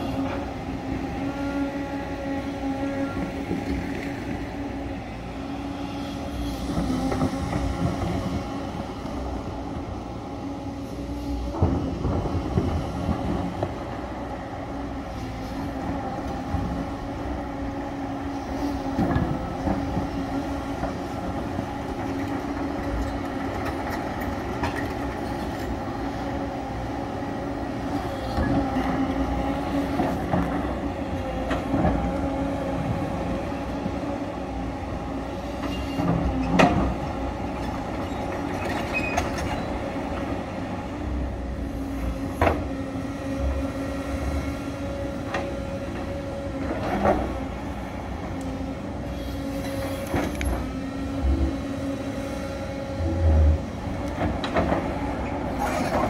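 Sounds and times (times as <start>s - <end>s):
excavator diesel engine drone: 0.0s - 56.0s.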